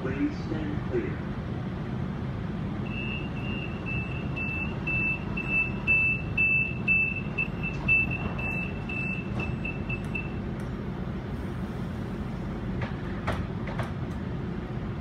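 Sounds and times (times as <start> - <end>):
low train rumble: 0.0 - 15.0
train door warning beeps: 2.8 - 10.5
train doors sliding shut: 11.3 - 14.3.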